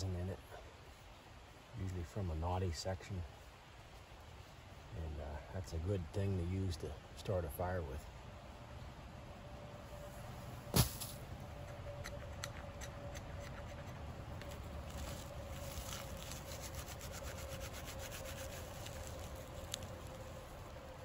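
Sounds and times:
light scraping: 0:09.9 - 0:20.5
small crackles and ticks: 0:11.6 - 0:21.0.

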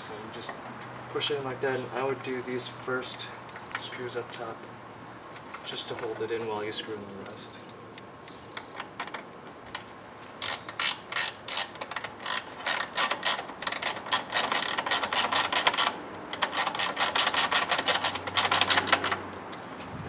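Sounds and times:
hand ratchet clicking: 0:09.8 - 0:19.2.

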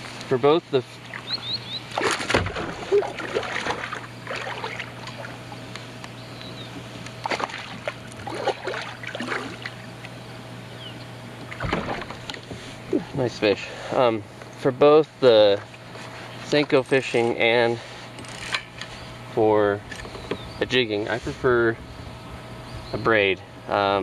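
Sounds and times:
low steady hum: 0:00.0 - 0:24.0
short water splashes: 0:01.9 - 0:05.4, 0:07.2 - 0:09.9, 0:11.5 - 0:12.4.

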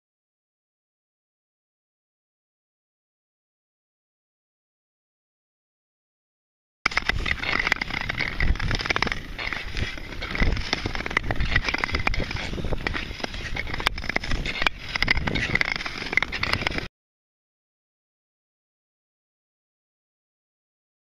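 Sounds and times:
skate blades scraping over ice: 0:06.9 - 0:16.9.

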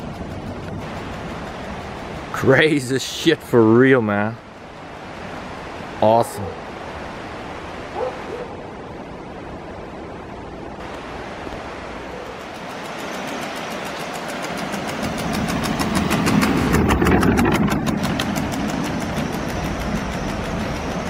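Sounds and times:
wheels rolling on asphalt: 0:00.0 - 0:03.7, 0:12.2 - 0:21.0
fast even ticking: 0:12.7 - 0:21.0.

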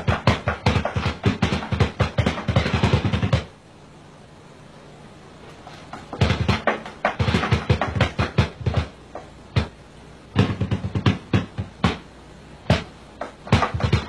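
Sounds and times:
drums struck in quick hits: 0:00.0 - 0:03.5, 0:06.1 - 0:09.0, 0:09.6 - 0:14.0.

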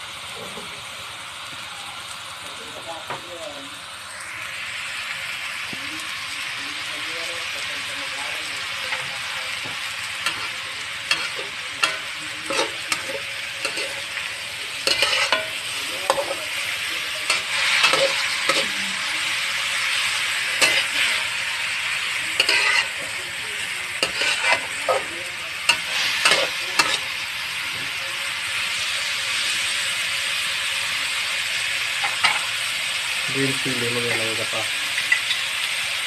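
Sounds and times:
food sizzling in a wok: 0:00.0 - 0:36.0
metal spatula scraping a pan: 0:08.9 - 0:23.2, 0:23.9 - 0:27.2.

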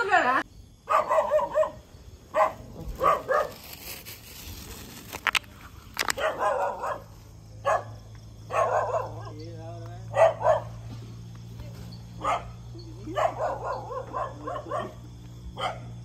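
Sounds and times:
dog barking: 0:00.8 - 0:03.6, 0:06.0 - 0:09.4, 0:10.1 - 0:10.9, 0:12.2 - 0:16.0.

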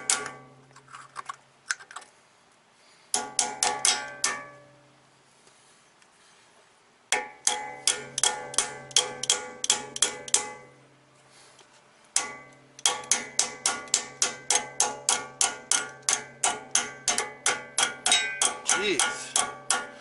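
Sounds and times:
hammering metal on metal: 0:00.0 - 0:00.5, 0:03.1 - 0:04.6, 0:07.1 - 0:10.7, 0:12.2 - 0:20.0.

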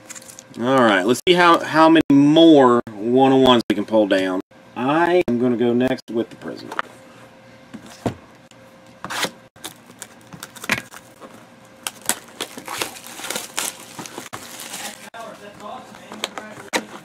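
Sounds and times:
foil pack crinkling: 0:09.6 - 0:16.7.

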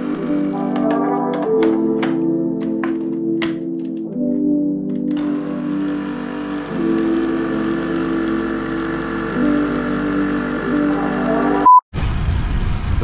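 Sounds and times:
coffee machine pump buzzing: 0:00.0 - 0:01.8, 0:05.1 - 0:11.6
music with sustained chords: 0:00.0 - 0:11.7.

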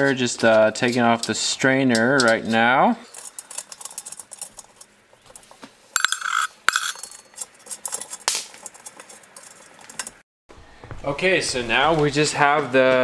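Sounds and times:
screws clinking on metal drum shell: 0:06.0 - 0:10.1.

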